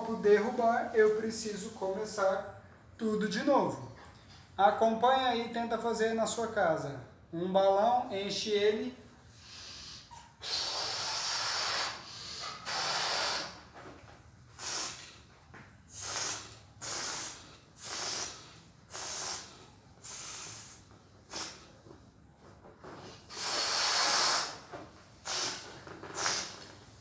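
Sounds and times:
air hissing from balloon: 0:09.2 - 0:13.9, 0:14.5 - 0:22.1, 0:22.8 - 0:27.0
breath blown into balloon: 0:09.3 - 0:13.7, 0:14.5 - 0:15.2, 0:15.9 - 0:21.8, 0:22.9 - 0:26.7.

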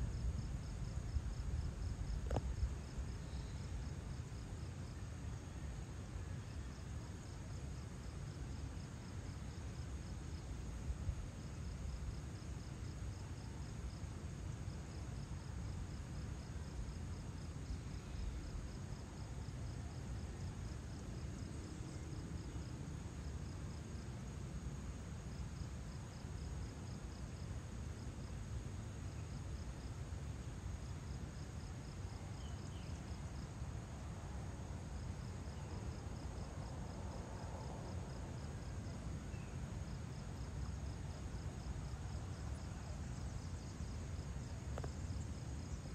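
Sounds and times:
insects chirping: 0:00.0 - 0:45.9.

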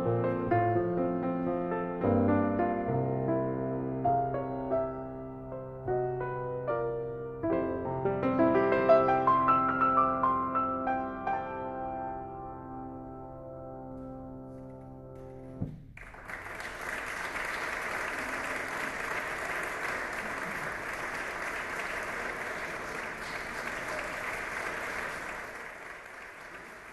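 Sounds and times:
audience applauding: 0:16.0 - 0:26.9.

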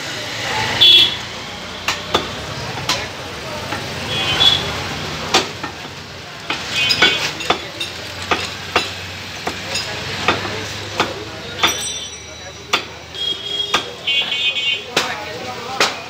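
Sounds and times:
high ringing notes: 0:11.7 - 0:12.7.

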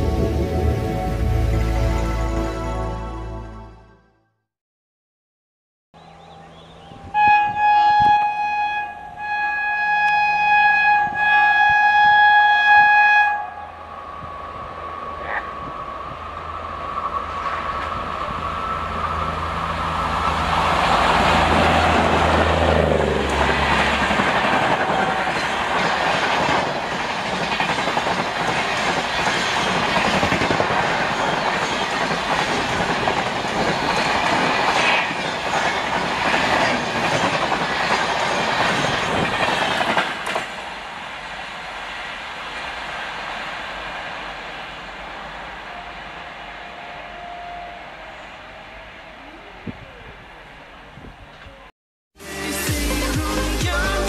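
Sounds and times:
electric locomotive hum and whine: 0:00.0 - 0:02.8, 0:06.0 - 0:51.7
train wheels clattering on rails: 0:20.6 - 0:40.9.

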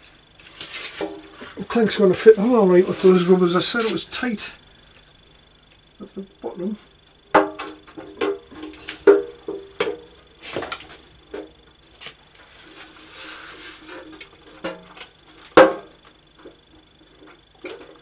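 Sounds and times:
metal rubbing scrape: 0:12.4 - 0:14.0.

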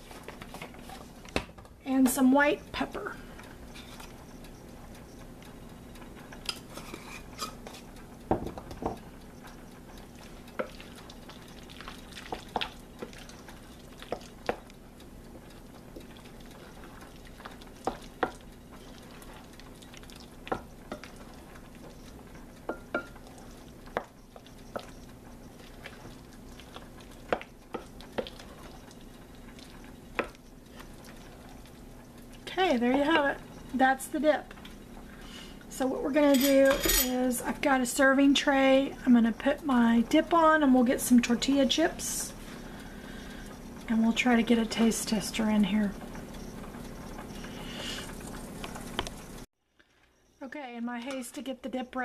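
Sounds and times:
spatula scraping ceramic bowl: 0:06.7 - 0:07.8.

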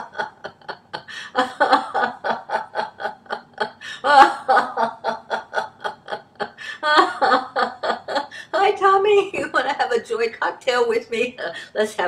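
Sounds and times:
woman laughing heartily: 0:00.0 - 0:08.6.

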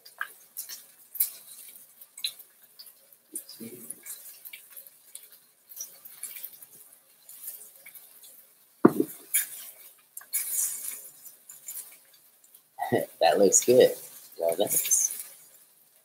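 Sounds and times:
glassware and dishes clinking: 0:08.9 - 0:09.2
knock on counter: 0:08.9 - 0:09.2.

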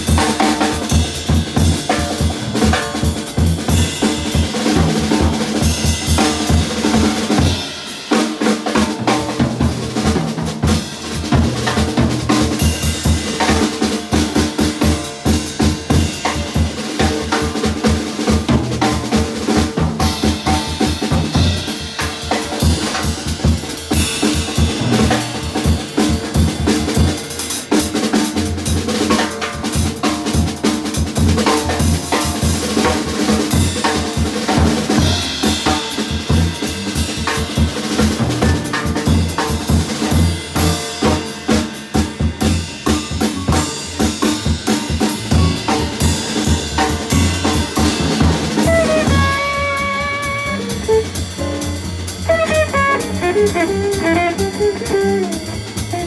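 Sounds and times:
drum kit: 0:00.0 - 0:56.0
piano: 0:00.0 - 0:56.0
upright double bass: 0:01.3 - 0:07.5, 0:08.8 - 0:13.6, 0:18.4 - 0:21.8, 0:24.6 - 0:27.2, 0:34.8 - 0:41.0, 0:42.5 - 0:56.0
electric guitar: 0:52.3 - 0:56.0.

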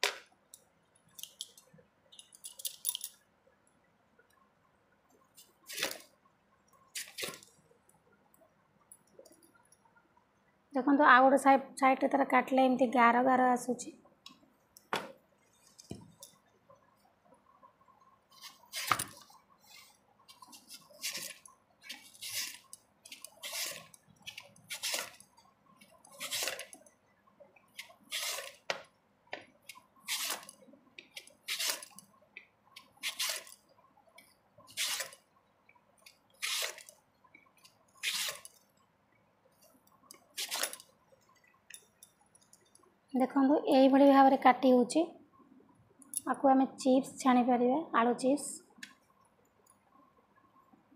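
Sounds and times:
potato rasping across slicer blade: 0:19.8 - 0:25.2, 0:26.1 - 0:26.7, 0:27.8 - 0:28.6, 0:30.1 - 0:30.5, 0:31.5 - 0:32.0, 0:36.4 - 0:36.9.

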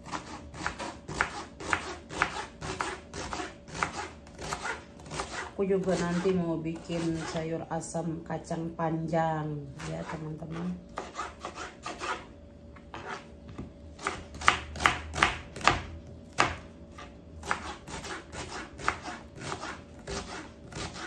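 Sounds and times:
knife chopping on wooden board: 0:00.0 - 0:06.2, 0:12.9 - 0:21.0.

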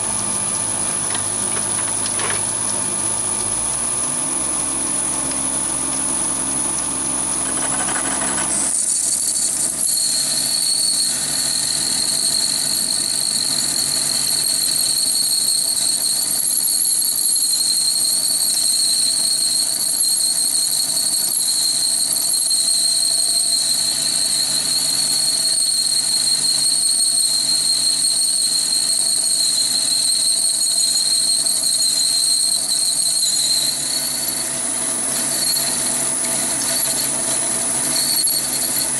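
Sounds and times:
drill squealing in steel: 0:00.0 - 0:38.9
lathe running: 0:21.6 - 0:38.9.

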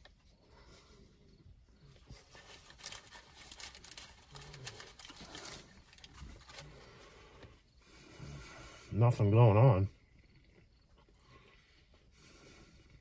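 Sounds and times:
paper wrapper crinkling: 0:02.2 - 0:06.7.

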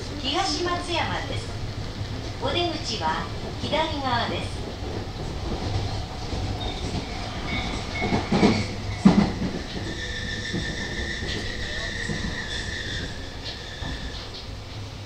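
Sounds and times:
electric train rumbling: 0:00.0 - 0:15.0.

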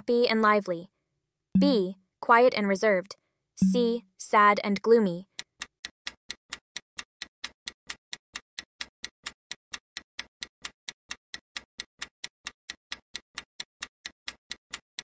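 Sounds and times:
countdown timer ticking: 0:01.6 - 0:02.0, 0:03.6 - 0:04.9.

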